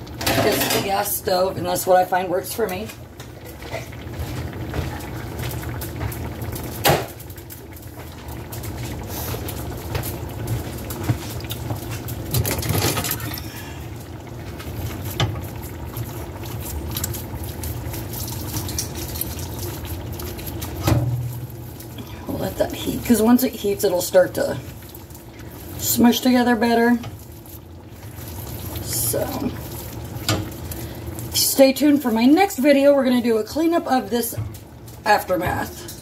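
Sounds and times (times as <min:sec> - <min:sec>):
beans squishing in a pan: 0:03.0 - 0:35.8.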